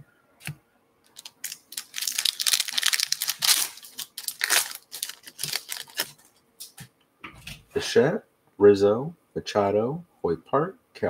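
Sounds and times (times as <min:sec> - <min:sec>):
foil wrapper crinkling and tearing: 0:01.1 - 0:06.3.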